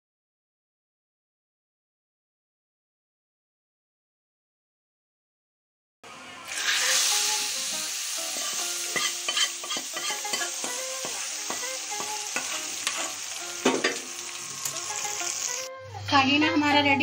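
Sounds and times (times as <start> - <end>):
hot oil sizzling: 6.1 - 15.7
steel ladle scraping pan: 8.2 - 14.1.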